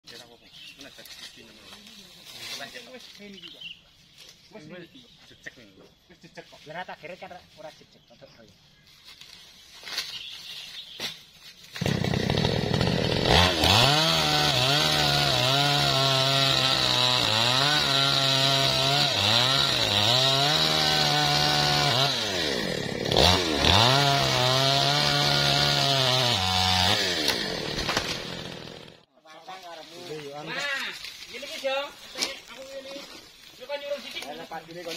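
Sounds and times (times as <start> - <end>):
chainsaw cutting wood: 11.6 - 29.1.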